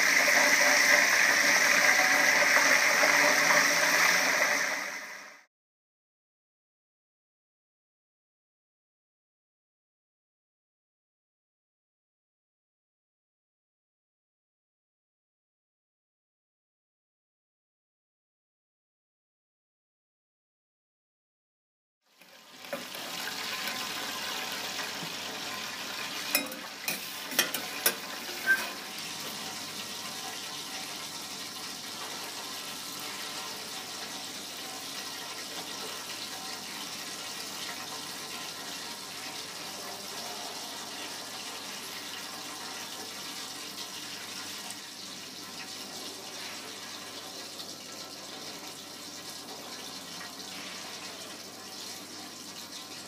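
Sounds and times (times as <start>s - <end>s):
kitchen background hiss: 0.0s - 5.4s, 22.2s - 53.0s
spoon clinking on metal pan: 26.3s - 28.8s.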